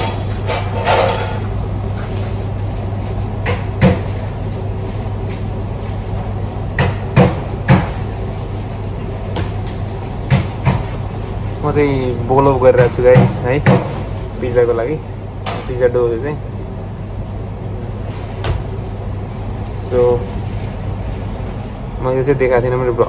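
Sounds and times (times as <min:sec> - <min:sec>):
kitchen machinery humming: 0:00.0 - 0:23.0.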